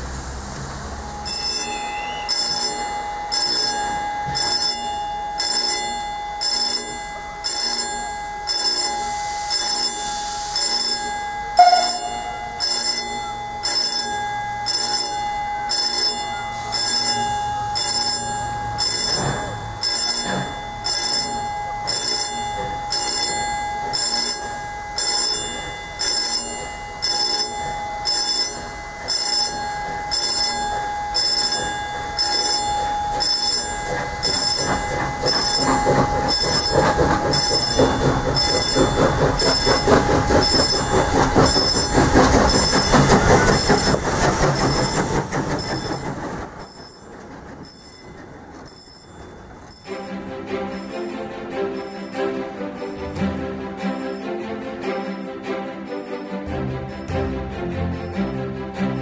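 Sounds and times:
warning bell striking: 1.1 - 44.0
brief loud sound: 11.6 - 12.5.

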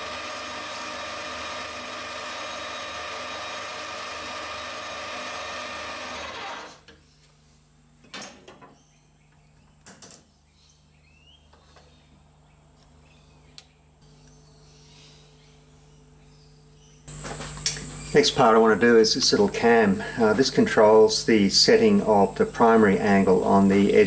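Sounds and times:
metal lathe humming: 0.0 - 6.8.

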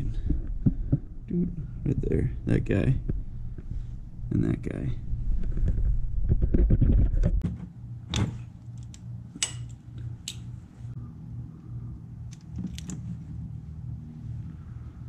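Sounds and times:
steady low hum: 0.0 - 15.0
socket wrench clinking on metal: 8.8 - 10.5.

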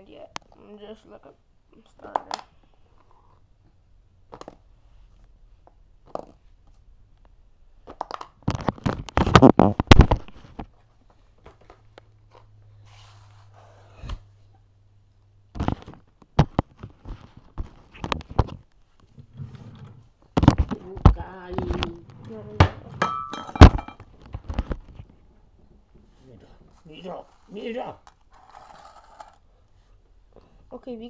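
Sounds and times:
low steady hum: 8.5 - 31.0.

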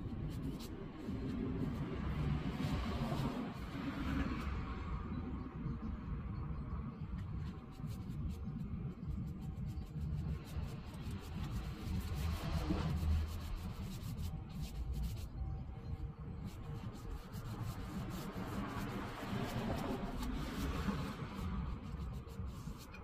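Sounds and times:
steady low rumble: 0.0 - 23.0
paintbrush swishing on wood: 7.5 - 15.4, 16.4 - 23.0.

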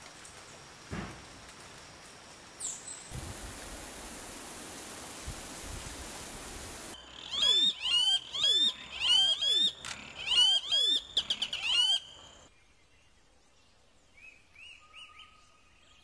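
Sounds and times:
steady hiss: 0.0 - 7.0
birds calling with sliding notes: 6.5 - 12.4.

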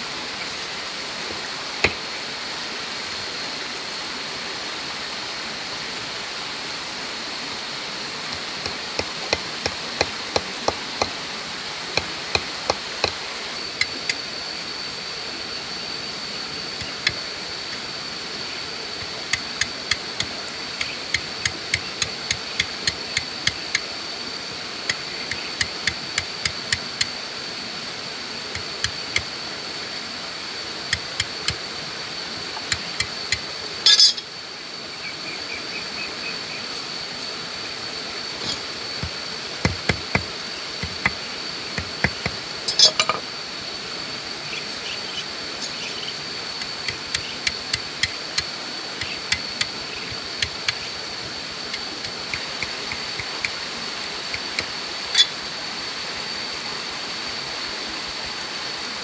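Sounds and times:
high-pitched insect buzz: 12.0 - 55.4.

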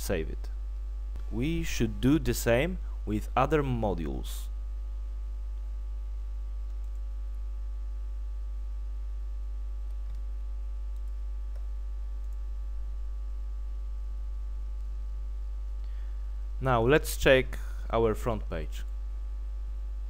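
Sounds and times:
low electrical hum: 0.0 - 20.0
computer mouse clicks: 6.6 - 7.1, 9.8 - 10.3, 10.9 - 12.4.

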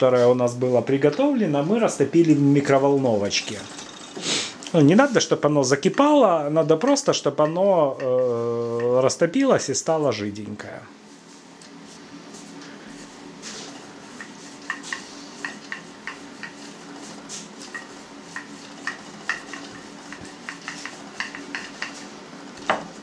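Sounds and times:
rolling pin rolling dough: 2.8 - 8.8, 12.3 - 23.0.

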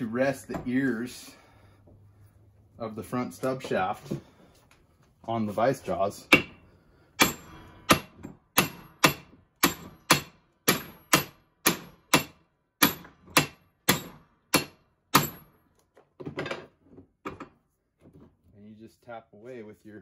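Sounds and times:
sledgehammer striking metal: 6.3 - 6.6, 7.2 - 15.5.

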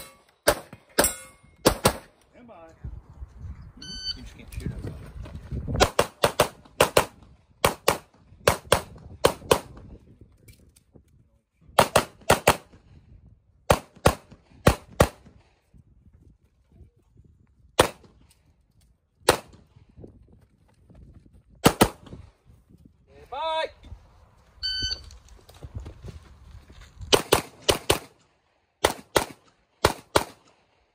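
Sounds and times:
handgun shots: 28.8 - 30.5.

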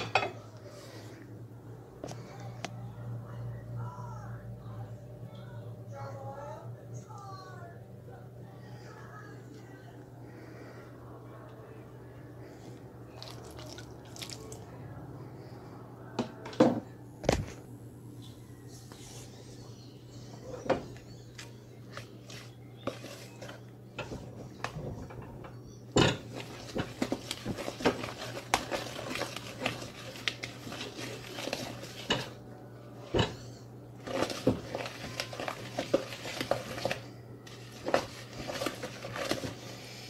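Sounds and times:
spoon stirring thick batter: 21.1 - 24.8, 26.2 - 32.4, 33.0 - 40.0.

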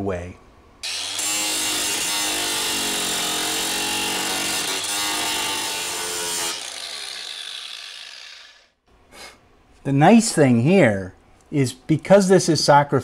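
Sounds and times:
angle grinder grinding metal: 0.8 - 8.7.

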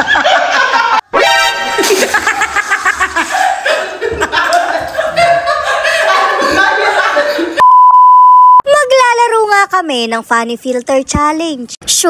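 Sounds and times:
people laughing: 0.0 - 1.0, 1.7 - 7.6
loud steady beep tone: 7.6 - 8.6.

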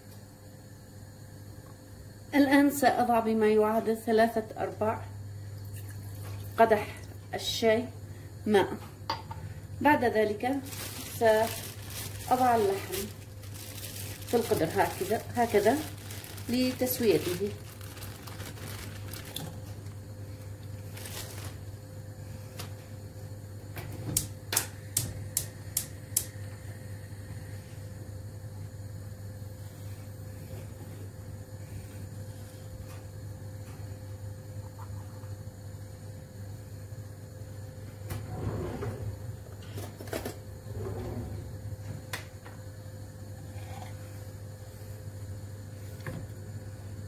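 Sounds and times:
steady low hum: 0.0 - 47.0
rustling: 10.6 - 20.0, 20.8 - 21.7.

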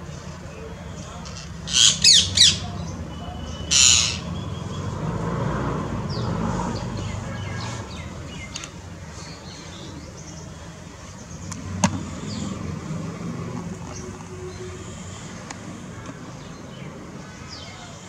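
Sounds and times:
parakeets squawking: 1.2 - 4.4.

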